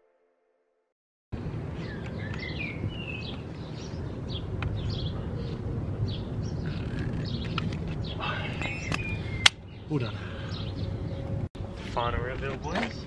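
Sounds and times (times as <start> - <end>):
low outdoor rumble: 1.3 - 13.0
birds chirping and singing: 1.6 - 11.4.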